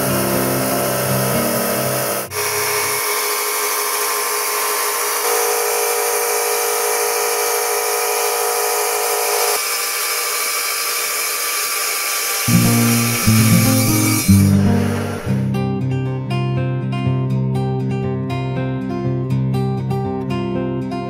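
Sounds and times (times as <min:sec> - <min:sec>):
tile saw whining through glass: 0:00.0 - 0:15.6.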